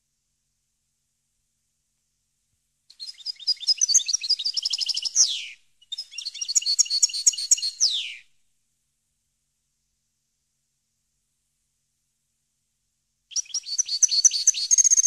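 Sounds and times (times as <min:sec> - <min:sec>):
goldfinch twittering song: 0:03.0 - 0:08.2, 0:13.3 - 0:15.0.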